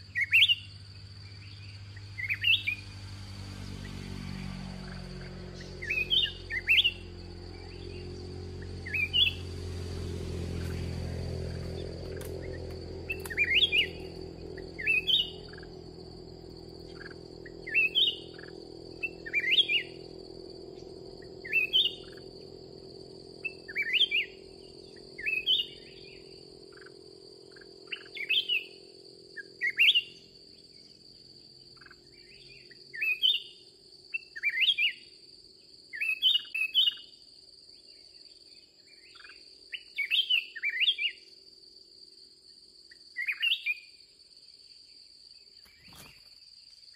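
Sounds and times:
bulbul singing: 0:00.0 - 0:31.1
high-pitched insect drone: 0:00.0 - 0:44.2.

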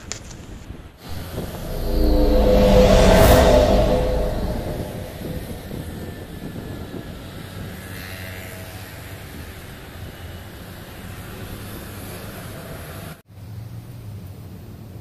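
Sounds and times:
low hum: 0:01.1 - 0:06.4.

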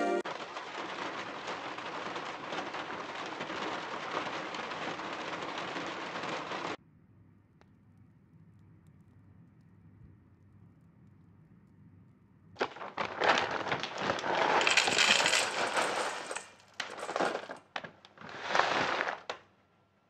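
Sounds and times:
wood chips poured into metal bowl: 0:00.2 - 0:06.8, 0:12.6 - 0:19.4.

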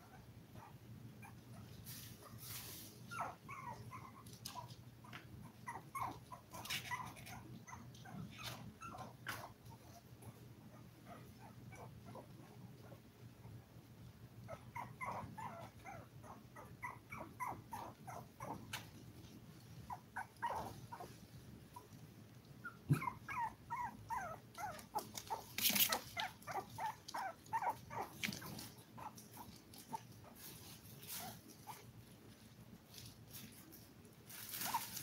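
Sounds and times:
puppies whimpering and yipping: 0:03.1 - 0:10.0, 0:14.5 - 0:18.8, 0:19.9 - 0:21.2, 0:22.6 - 0:31.8.

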